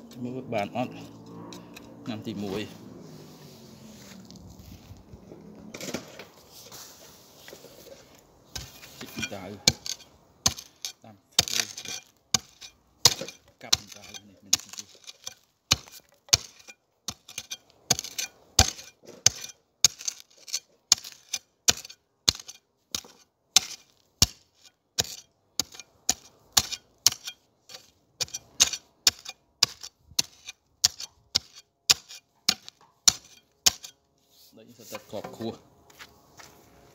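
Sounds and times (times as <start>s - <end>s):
hoe chopping into soil: 8.5s - 34.0s.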